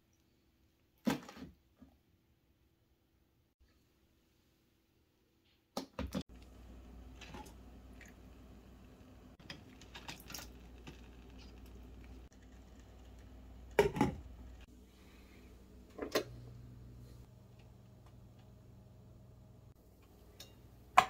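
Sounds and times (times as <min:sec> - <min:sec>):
low steady hum: 0:06.3 - 0:21.0.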